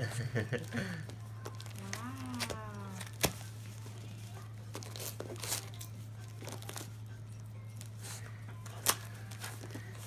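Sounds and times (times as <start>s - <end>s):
dog tearing wrapping paper: 4.6s - 7.0s, 8.0s - 10.0s.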